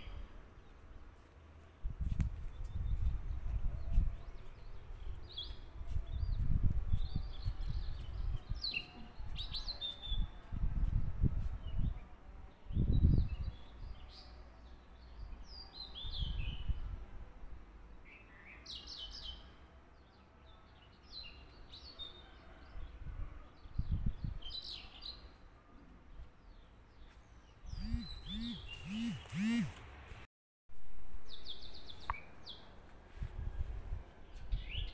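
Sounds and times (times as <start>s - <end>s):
small birds chirping: 26.1s - 29.8s.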